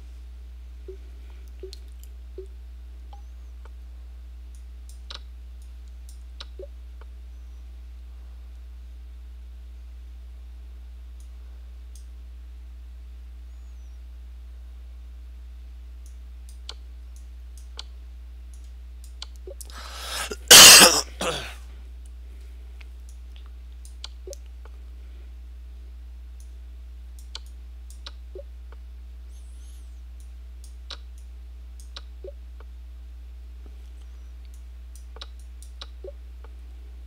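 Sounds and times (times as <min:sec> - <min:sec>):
computer mouse clicks: 0:04.5 - 0:05.3, 0:27.2 - 0:28.2
man coughing: 0:19.8 - 0:21.6.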